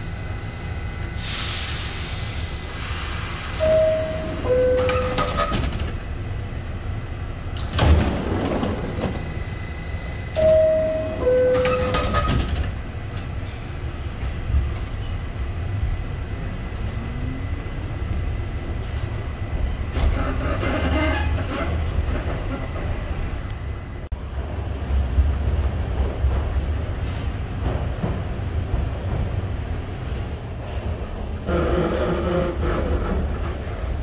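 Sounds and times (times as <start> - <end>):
train rumble: 0.0 - 34.0
two-note falling door chime: 3.6 - 5.3, 10.4 - 12.3.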